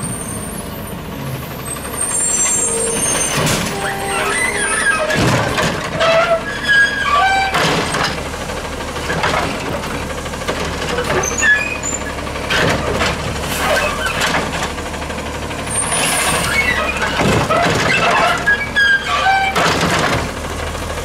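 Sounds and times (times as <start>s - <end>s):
garbage truck engine running: 0.0s - 21.0s
short squeals: 1.8s - 7.7s, 15.7s - 19.8s.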